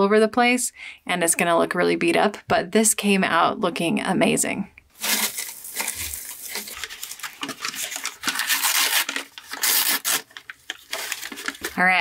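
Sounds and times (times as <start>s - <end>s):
packing material rustling: 4.9s - 11.8s.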